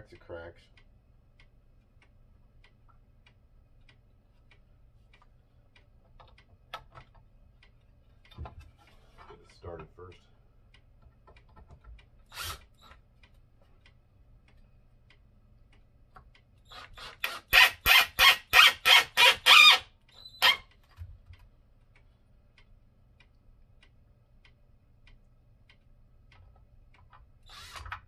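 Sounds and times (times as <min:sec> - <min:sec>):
cordless drill driving a screw: 0:12.3 - 0:12.7, 0:16.7 - 0:20.6, 0:27.4 - 0:28.0.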